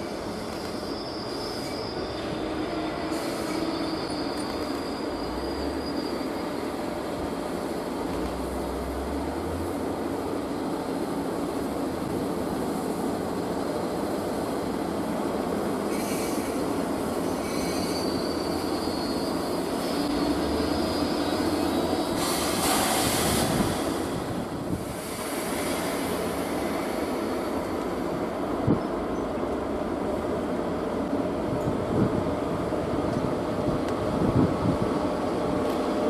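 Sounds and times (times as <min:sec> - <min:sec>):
train wheels rumbling on rails: 0:00.0 - 0:36.0
high-pitched wheel squeal: 0:00.6 - 0:06.8, 0:17.3 - 0:22.1.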